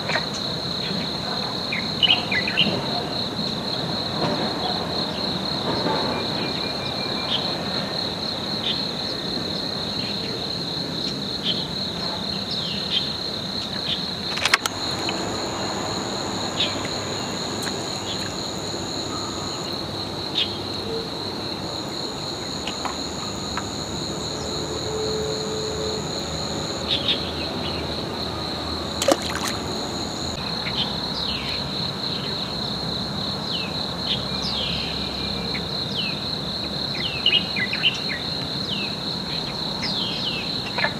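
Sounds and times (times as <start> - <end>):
insects trilling: 0.0 - 40.9
sharp clicks: 14.3 - 15.1.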